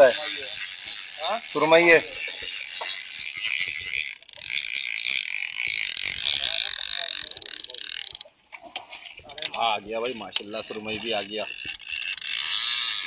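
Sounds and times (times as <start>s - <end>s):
fishing reel ratcheting: 0.0s - 13.0s.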